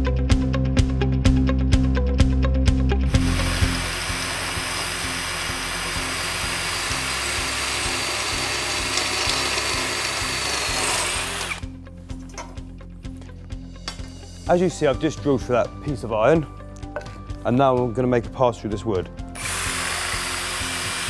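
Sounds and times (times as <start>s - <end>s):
background music with steady beat: 0.0s - 21.0s
drill boring through metal: 3.1s - 11.6s, 19.4s - 21.0s.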